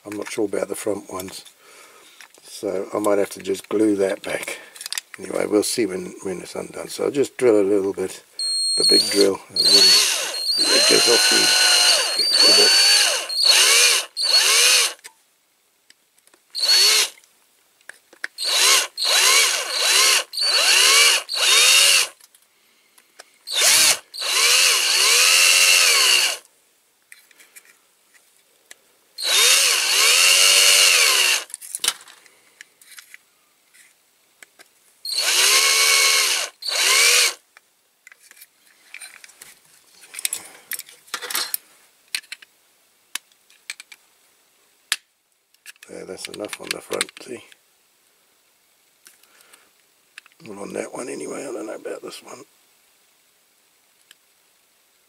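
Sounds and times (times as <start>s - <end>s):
electric drill whirring: 8.4s - 15.0s, 16.6s - 17.2s, 18.4s - 22.2s, 23.5s - 26.4s, 29.2s - 31.5s, 35.0s - 37.4s.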